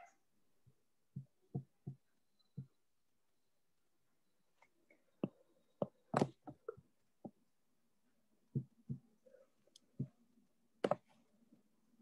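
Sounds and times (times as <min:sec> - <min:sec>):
soft knocks and taps: 0:01.1 - 0:02.8, 0:08.5 - 0:09.1.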